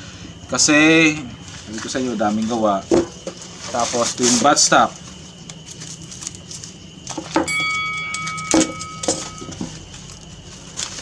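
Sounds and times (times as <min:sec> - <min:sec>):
paper wrapping rustling: 0:03.5 - 0:06.8, 0:09.7 - 0:11.0
ringing tone: 0:07.5 - 0:09.9.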